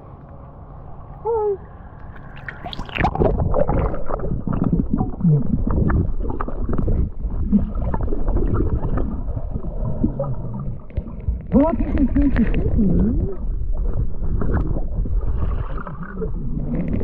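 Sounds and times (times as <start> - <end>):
muffled underwater water movement: 0.0 - 17.0
underwater gurgling: 0.0 - 17.0
small underwater clicks: 5.8 - 17.0.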